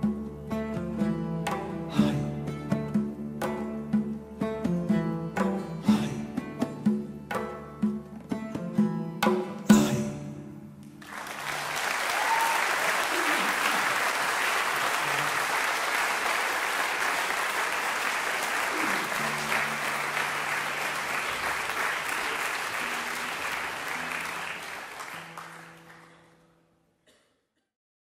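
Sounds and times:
audience applauding: 0:11.0 - 0:26.5.

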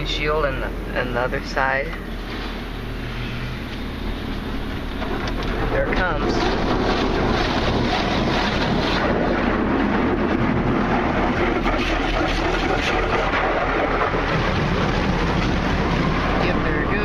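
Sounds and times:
water spray hitting car body: 0:05.9 - 0:09.5.

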